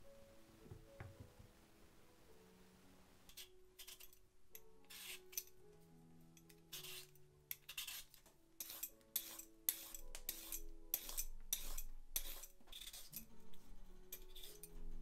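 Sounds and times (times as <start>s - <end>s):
vegetable peeler scraping: 3.3s - 5.5s, 6.7s - 13.4s, 14.2s - 14.8s.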